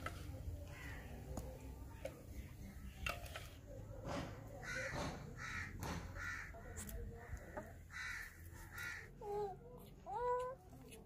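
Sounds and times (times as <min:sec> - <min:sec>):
crow cawing: 0:04.6 - 0:06.8, 0:07.4 - 0:09.1.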